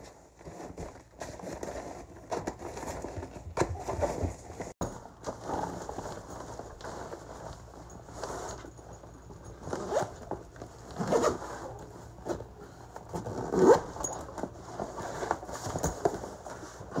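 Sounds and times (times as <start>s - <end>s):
fabric rustling: 3.1s - 17.0s
zipper being pulled: 9.6s - 10.3s, 10.9s - 11.8s, 13.1s - 15.9s.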